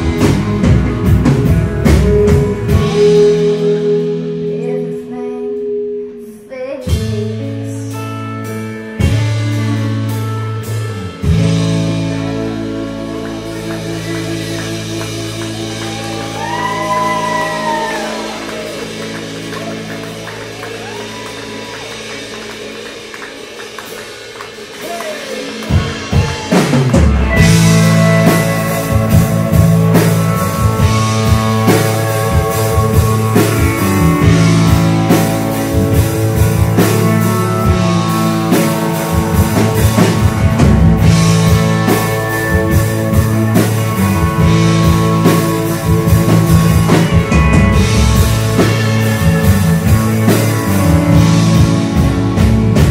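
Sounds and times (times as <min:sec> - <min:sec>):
drums: 0:00.0 - 0:52.9
electric guitar chords: 0:00.0 - 0:52.9
slide guitar notes: 0:26.9 - 0:52.9.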